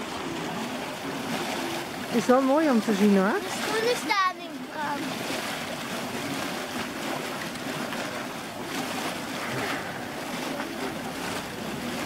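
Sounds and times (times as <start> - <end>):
geyser water rushing and churning: 0.0 - 12.0.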